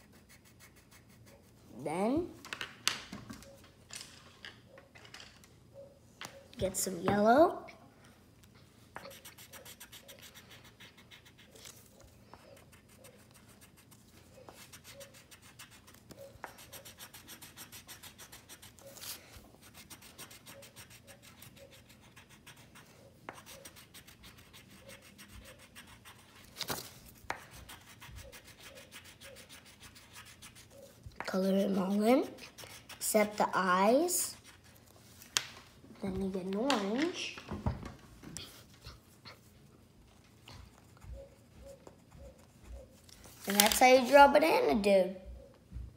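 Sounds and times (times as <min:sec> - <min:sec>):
pencil rubbing on paper: 0:00.0 - 0:01.6, 0:09.0 - 0:26.5, 0:27.3 - 0:34.8, 0:40.6 - 0:43.0.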